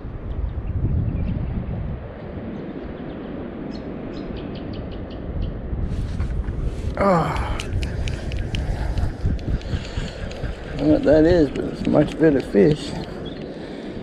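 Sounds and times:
wind and water rumble: 0:00.0 - 0:14.0
faint clicks: 0:07.1 - 0:13.8.

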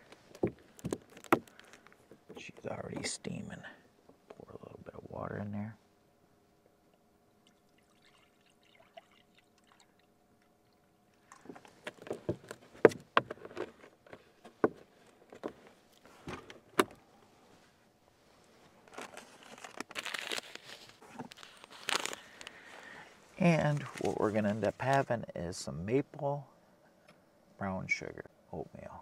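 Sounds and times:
faint steady hum: 0:00.0 - 0:29.0
paper packet rustling: 0:18.8 - 0:22.9.

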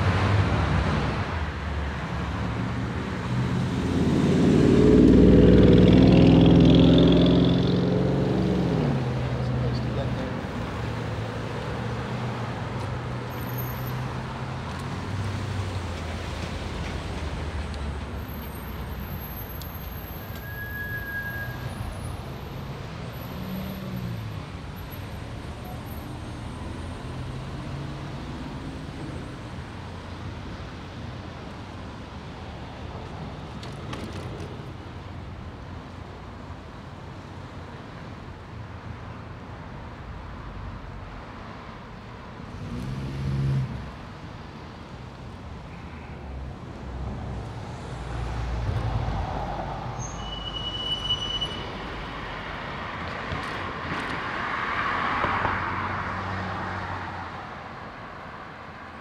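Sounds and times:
cars passing: 0:00.0 - 0:59.0.

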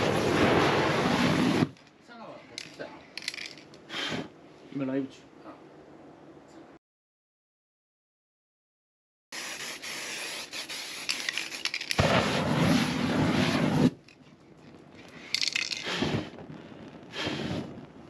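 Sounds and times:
flame whooshing: 0:00.0 - 0:01.8, 0:09.4 - 0:14.2, 0:14.8 - 0:18.0
aerosol can hissing: 0:09.4 - 0:12.0.

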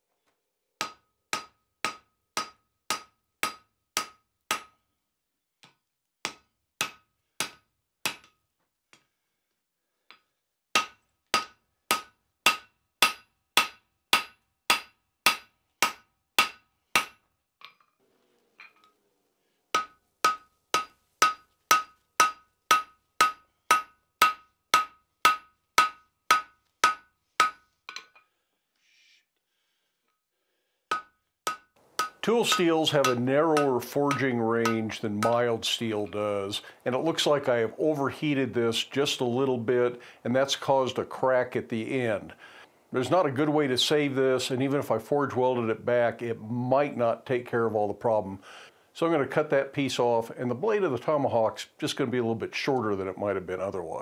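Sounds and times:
hammer striking steel on anvil: 0:00.8 - 0:04.8, 0:06.3 - 0:08.4, 0:10.1 - 0:17.8, 0:19.7 - 0:28.2, 0:30.9 - 0:35.5.

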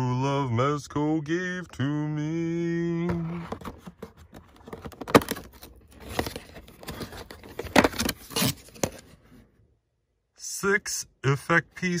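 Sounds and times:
cardboard and plastic clicks and crinkles: 0:03.1 - 0:09.4.

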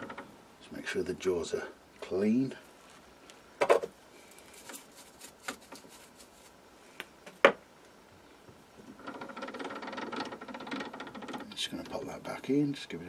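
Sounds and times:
fine ticking rattle: 0:08.9 - 0:12.0.

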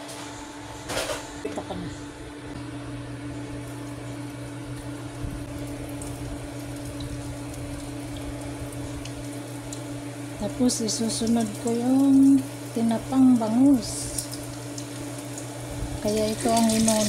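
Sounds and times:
cooktop humming: 0:00.0 - 0:17.0
food sizzling in hot oil: 0:05.4 - 0:17.0.

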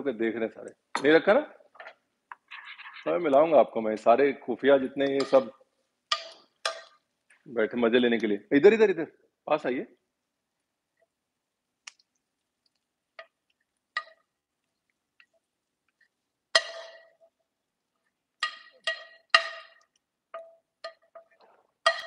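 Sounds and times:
metal spoon clinking on pan: 0:05.0 - 0:07.0, 0:16.5 - 0:17.3, 0:18.4 - 0:22.0.

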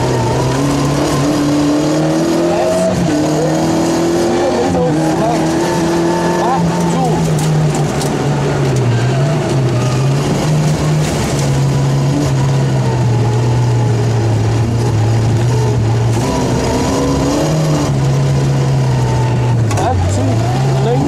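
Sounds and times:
rally car engine from inside: 0:00.0 - 0:21.0.

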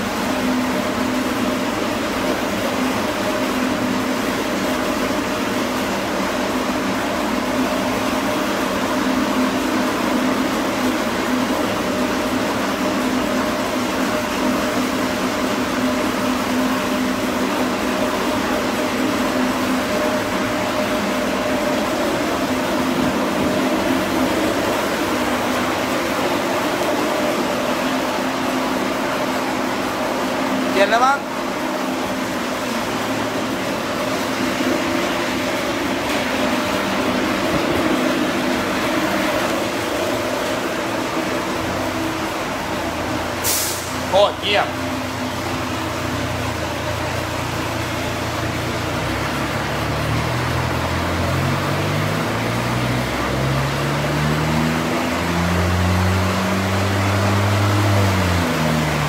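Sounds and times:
machine rushing with low hum: 0:31.4 - 0:43.3.

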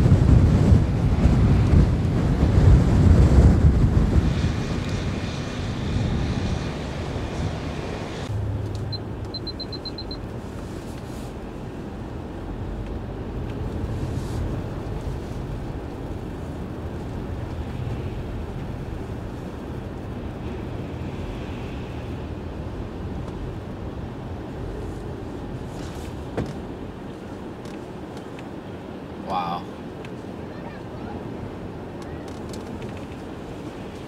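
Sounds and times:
car road noise: 0:00.0 - 0:34.0
strong wind rumble: 0:00.0 - 0:34.0
high electronic beeps: 0:08.9 - 0:10.2.

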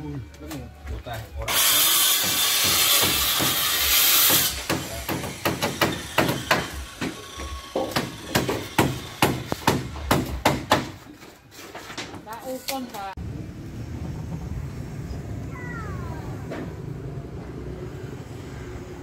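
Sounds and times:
hammer blows on timber: 0:02.1 - 0:11.0.

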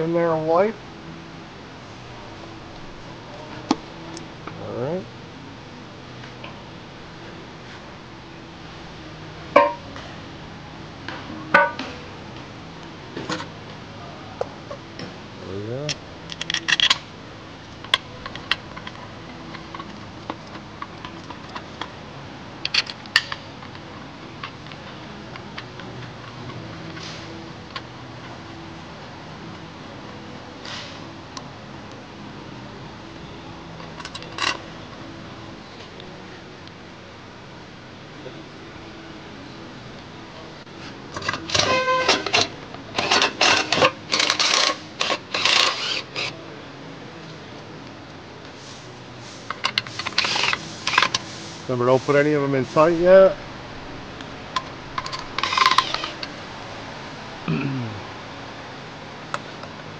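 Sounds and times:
tools rattling and scraping: 0:15.9 - 0:17.1, 0:40.8 - 0:46.4, 0:49.4 - 0:51.3, 0:54.5 - 0:56.4
clinks of tools and metal parts: 0:41.1 - 0:46.3.

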